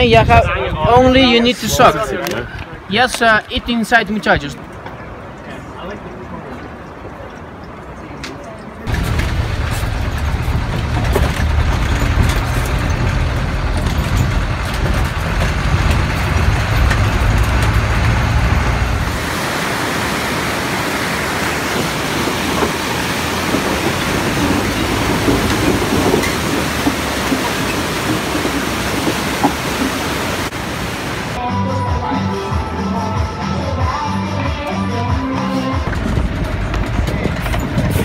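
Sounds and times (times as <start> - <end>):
bus engine and road rumble: 0.0 - 31.5, 33.0 - 38.0
river rushing: 8.8 - 31.4.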